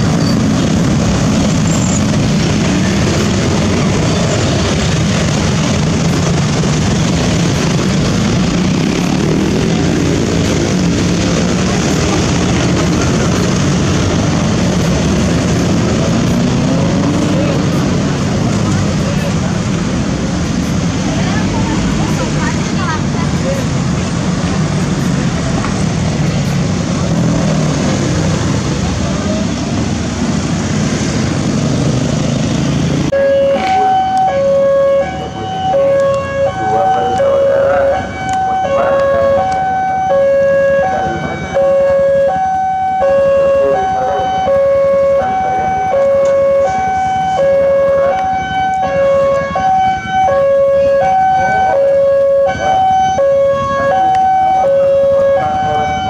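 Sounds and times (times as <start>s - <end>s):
road traffic passing: 0.0s - 56.0s
two-tone level crossing alarm: 33.1s - 56.0s.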